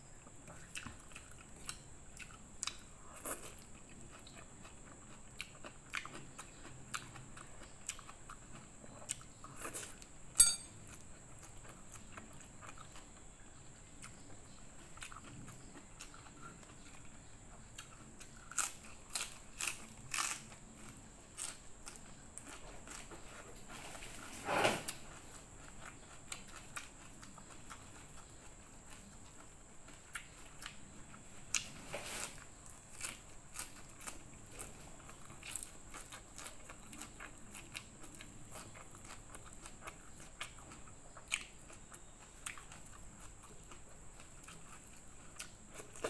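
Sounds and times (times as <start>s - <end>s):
chewing noodles: 0.2s - 10.1s, 10.9s - 24.2s, 24.9s - 46.0s
crunching leafy greens: 18.5s - 26.9s.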